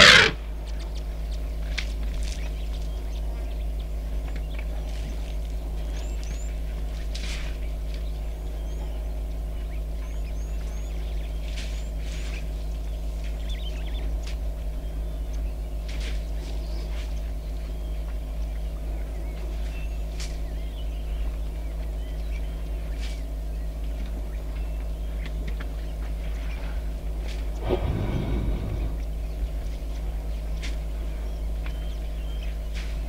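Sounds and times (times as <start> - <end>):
birds chirping: 0.0 - 0.4, 27.6 - 29.5.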